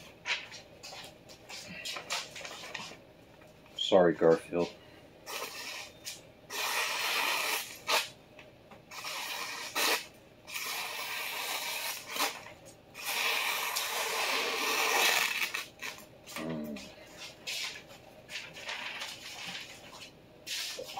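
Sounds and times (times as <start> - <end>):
paper crinkling: 17.5 - 20.9.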